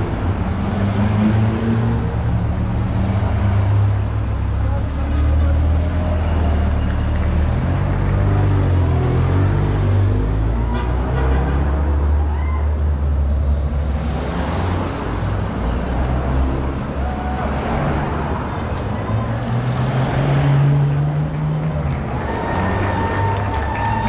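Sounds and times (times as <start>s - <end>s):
car engines running: 0.0s - 10.6s
tyres on road: 0.0s - 24.0s.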